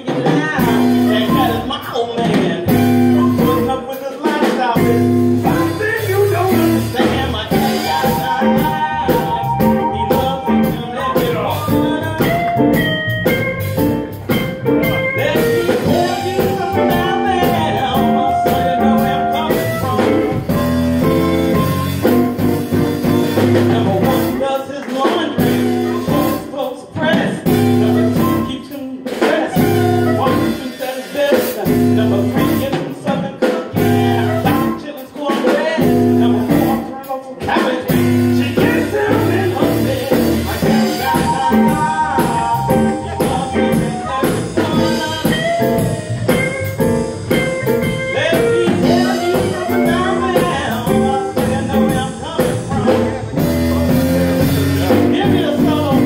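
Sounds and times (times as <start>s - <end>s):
blues band playing live: 0.0s - 56.0s
wavering lead guitar notes: 2.6s - 3.8s, 4.8s - 24.4s, 25.4s - 26.6s, 27.4s - 28.6s, 29.5s - 30.6s, 33.8s - 34.8s, 38.0s - 56.0s.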